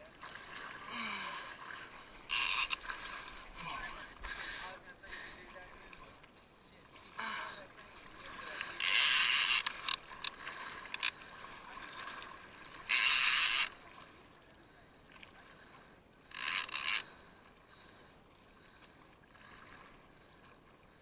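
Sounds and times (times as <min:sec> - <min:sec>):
fishing reel buzzing: 0:02.1 - 0:03.0, 0:08.6 - 0:11.2, 0:12.8 - 0:13.8, 0:16.2 - 0:17.1
sharp reel clicks: 0:02.3 - 0:02.8, 0:08.8 - 0:11.2, 0:12.9 - 0:13.8, 0:16.3 - 0:17.1.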